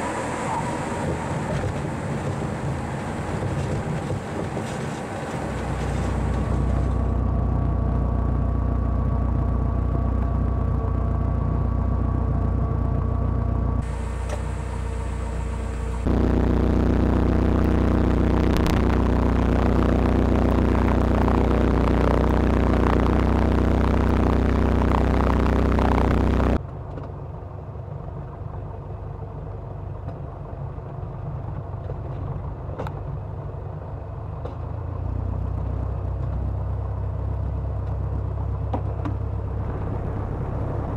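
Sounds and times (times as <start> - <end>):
light aircraft engine and propeller: 0.0 - 35.0.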